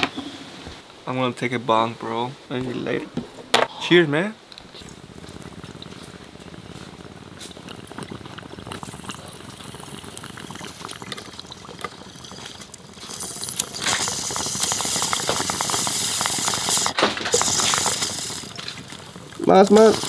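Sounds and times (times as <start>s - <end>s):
water bubbling in bong: 4.6s - 20.0s.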